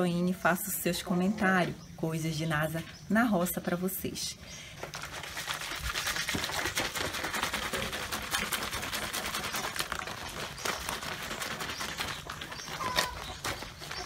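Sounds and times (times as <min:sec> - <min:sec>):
hand scrubbing soapy water: 0:04.9 - 0:13.0.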